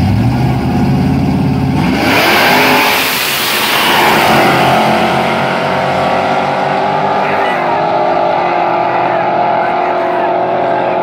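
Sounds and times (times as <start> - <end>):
race cars accelerating: 0.0 - 11.0.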